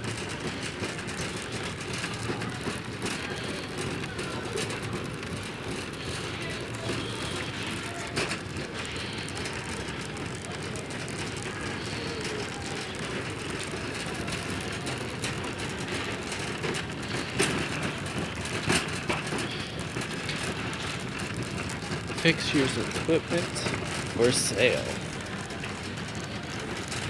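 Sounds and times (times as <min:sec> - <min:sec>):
shopping cart rattling on tiles: 0:00.0 - 0:27.0.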